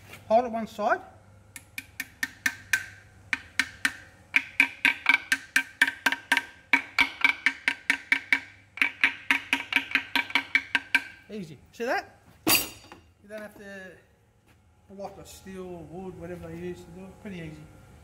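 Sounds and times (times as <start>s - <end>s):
hammer tapping metal: 1.6s - 11.2s.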